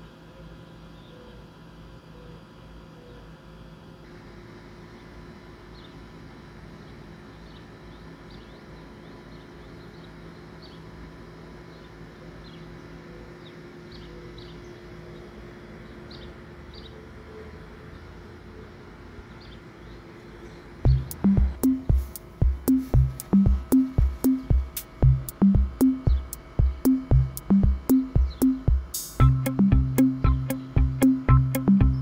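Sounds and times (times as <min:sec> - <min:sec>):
steady low hum: 0:00.0 - 0:32.0
small bird chirping: 0:19.4 - 0:32.0.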